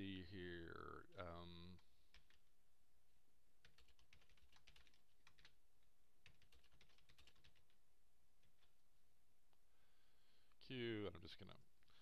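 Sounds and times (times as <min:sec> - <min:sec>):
typing on computer keyboard: 0:02.1 - 0:02.4, 0:03.6 - 0:05.6, 0:06.2 - 0:07.8.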